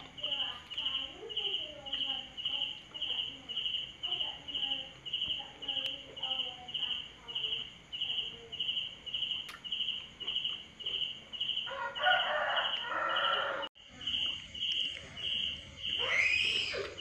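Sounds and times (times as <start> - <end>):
insects chirping: 0.0 - 17.0
chicken calling: 11.6 - 13.7, 15.8 - 17.0.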